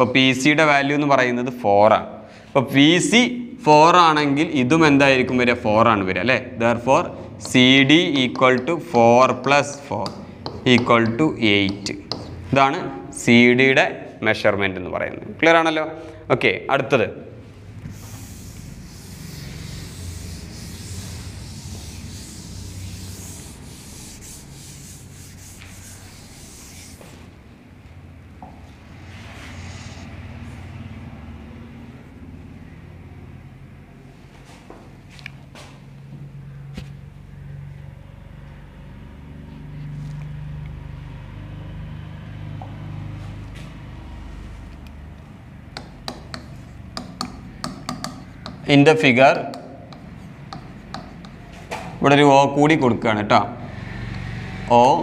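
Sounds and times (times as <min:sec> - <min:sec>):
low rumbling hum: 0:17.4 - 0:34.1
hand rubbing on glass: 0:17.9 - 0:27.4, 0:29.1 - 0:30.2, 0:45.8 - 0:48.8, 0:49.5 - 0:51.6.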